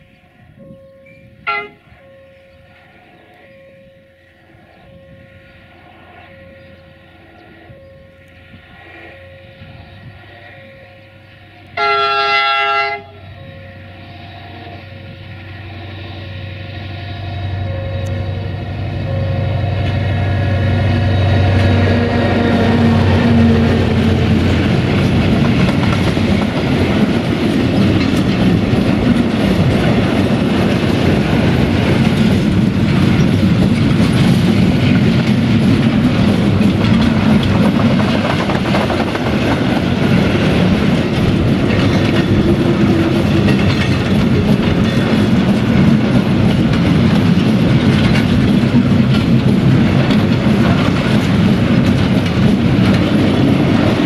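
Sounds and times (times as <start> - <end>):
diesel locomotive engine running: 0.0 - 54.0
wagon wheels clicking over rail joints: 22.8 - 54.0.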